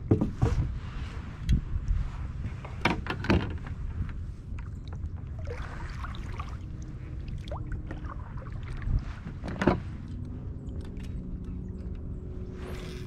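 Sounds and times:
kayak paddle splashing water: 0:05.3 - 0:09.4.

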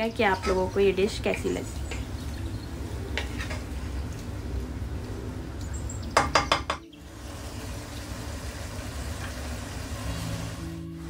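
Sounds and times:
spatula knocking against pan: 0:06.2 - 0:06.9.

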